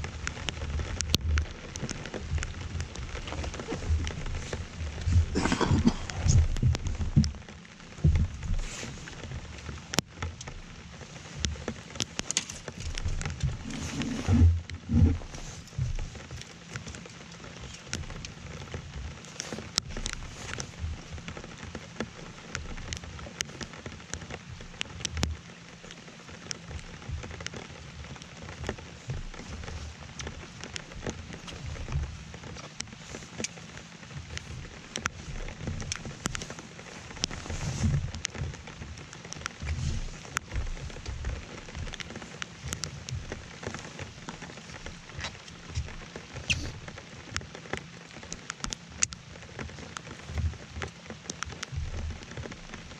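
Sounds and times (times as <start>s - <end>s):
low bumps: 0.0s - 9.7s, 12.6s - 16.5s
rain patter: 0.0s - 52.9s
raindrops tapping microphone: 0.0s - 52.9s.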